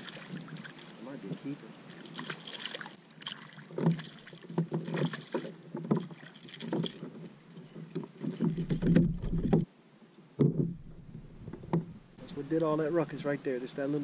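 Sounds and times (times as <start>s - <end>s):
knocks and thumps on kayak: 3.7s - 9.7s, 10.4s - 12.1s.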